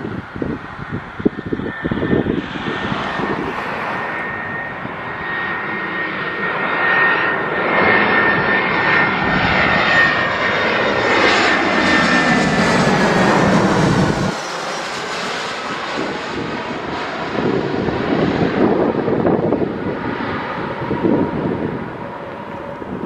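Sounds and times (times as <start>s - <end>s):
jet engines whining: 0.0s - 23.0s
rushing rumble: 9.3s - 22.0s.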